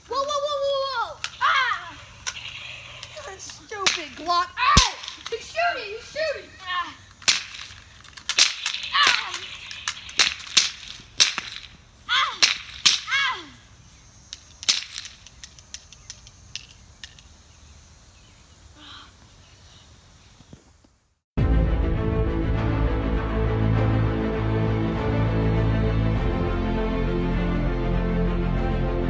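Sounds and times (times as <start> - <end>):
toy cap guns firing: 1.1 - 5.9, 7.1 - 13.2, 14.3 - 17.3.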